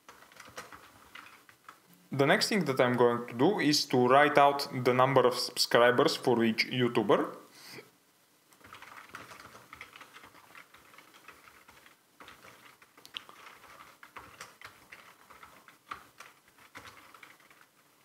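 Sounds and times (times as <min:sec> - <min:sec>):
typing on computer keyboard: 0:00.0 - 0:01.8, 0:08.5 - 0:17.8.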